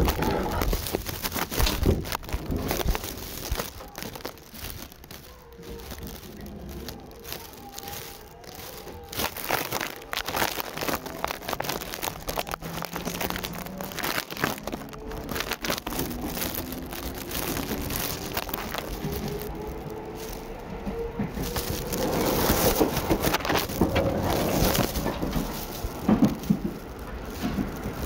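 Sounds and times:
electric train motors whining: 0:15.9 - 0:28.0.

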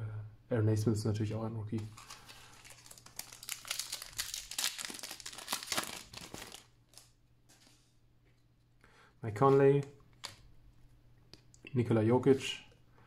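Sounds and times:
plastic wrapper tearing and crinkling: 0:01.8 - 0:07.2.

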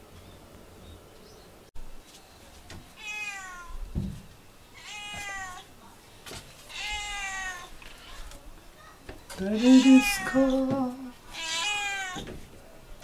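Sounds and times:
cat meowing: 0:03.0 - 0:03.8, 0:04.8 - 0:05.7, 0:06.7 - 0:08.2, 0:09.6 - 0:10.6, 0:11.3 - 0:12.3
dull thump: 0:03.9 - 0:04.3.

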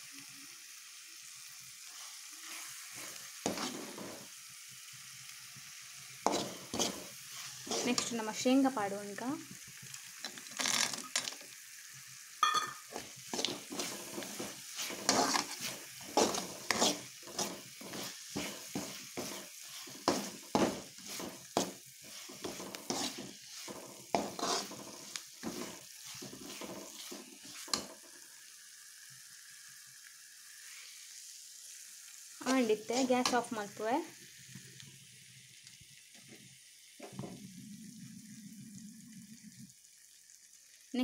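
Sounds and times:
peanuts sizzling in oil: 0:00.0 - 0:41.0
spoon scraping a pan: 0:01.9 - 0:04.3, 0:06.2 - 0:08.4, 0:12.4 - 0:28.1, 0:32.4 - 0:33.5.

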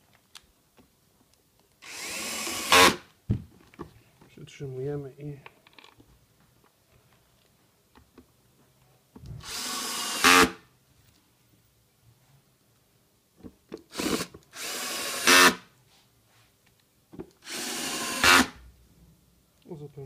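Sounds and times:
cordless drill driving screws: 0:01.8 - 0:03.1, 0:09.4 - 0:10.6, 0:13.9 - 0:15.6, 0:17.4 - 0:18.6.

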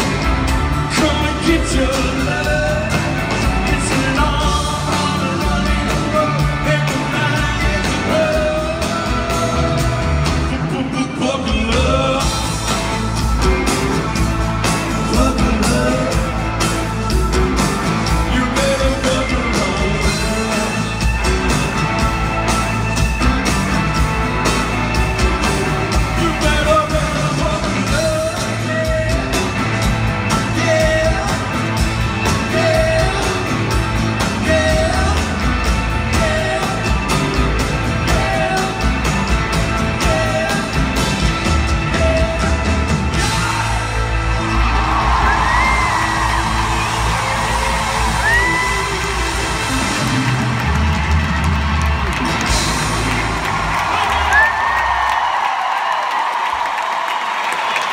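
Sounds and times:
man singing lead vocal: 0:00.0 - 0:13.1, 0:14.7 - 0:21.6, 0:25.8 - 0:49.8
live rock band playing: 0:00.0 - 0:57.9.

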